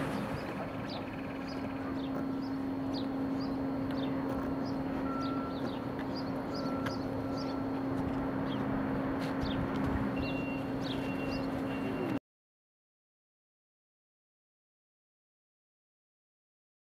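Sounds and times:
small birds chirping: 0.0 - 7.7, 9.4 - 12.2
low mechanical hum: 0.0 - 12.2.

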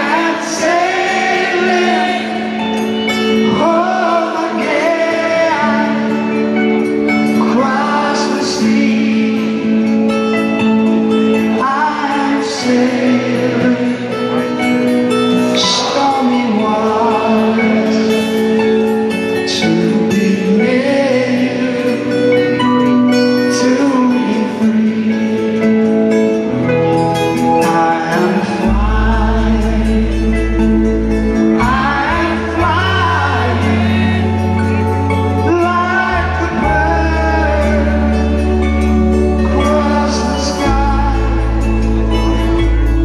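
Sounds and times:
people singing: 0.0 - 10.0, 11.5 - 14.6, 15.4 - 18.6, 19.5 - 22.4, 27.5 - 43.0
live rock band playing ballad: 0.0 - 43.0
deep bass: 28.6 - 43.0.

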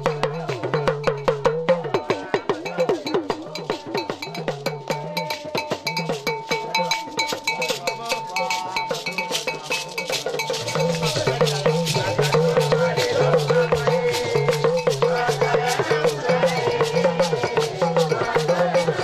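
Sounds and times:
group singing: 0.0 - 19.0
struck bell ringing: 0.3 - 19.0
handclaps: 6.8 - 19.0.

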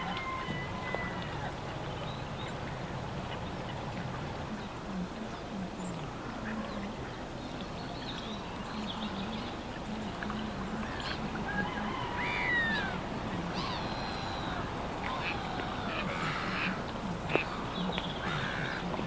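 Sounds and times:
small birds calling: 0.0 - 19.0
distant road traffic hum: 9.0 - 19.0
ducks quacking: 10.5 - 19.0.

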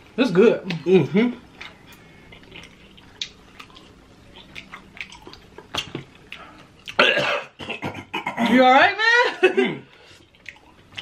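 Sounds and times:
lip smacking and chewing: 1.5 - 7.0, 10.1 - 11.0
people eating wet mouth sounds: 1.5 - 7.1, 9.9 - 11.0.

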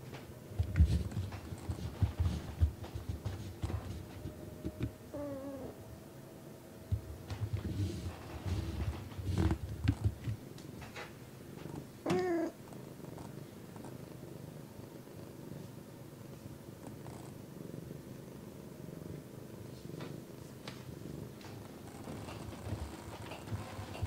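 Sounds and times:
cat purring: 0.5 - 5.9, 6.8 - 24.0
cat meow: 12.0 - 12.6.

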